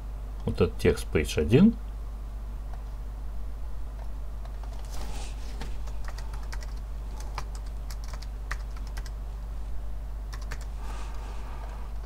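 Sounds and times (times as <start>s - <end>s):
typing on computer keyboard: 6.0s - 9.2s, 10.3s - 10.7s.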